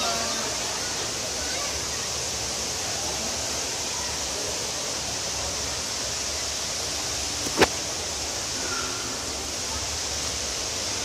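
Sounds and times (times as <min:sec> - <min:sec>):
indoor waterfall rushing: 0:00.0 - 0:11.0
sharp click: 0:07.4 - 0:07.8.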